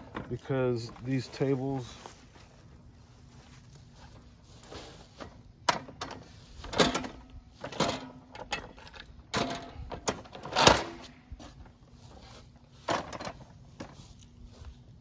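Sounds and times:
tools clunking and knocking: 5.2 - 11.7.

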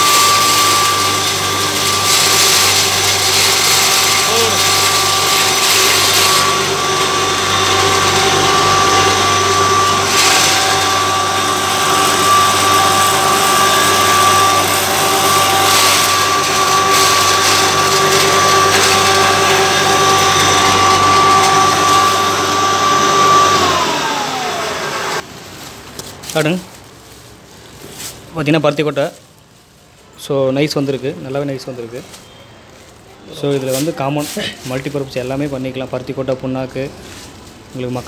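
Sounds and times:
grinding machine whining: 0.0 - 25.2.

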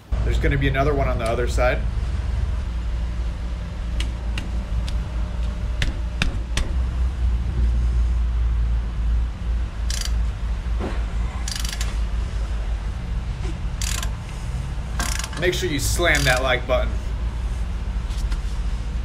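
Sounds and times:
steady low hum: 0.0 - 19.0
wrench rasping bursts: 9.8 - 10.3, 11.4 - 12.0, 13.7 - 14.2, 14.9 - 16.5
wrench metal clicks: 9.9 - 10.2, 11.4 - 12.0, 13.8 - 14.2, 15.0 - 15.5, 16.1 - 16.5.

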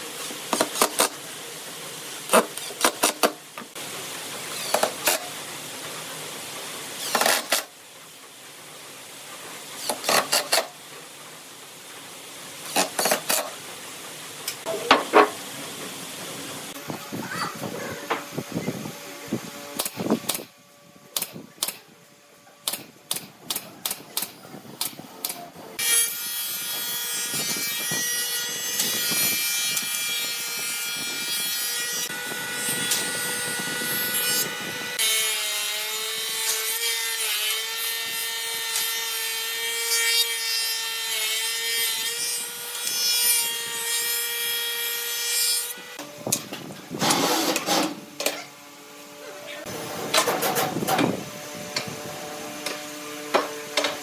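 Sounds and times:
wood planer whining: 14.5 - 20.2, 25.7 - 54.0.

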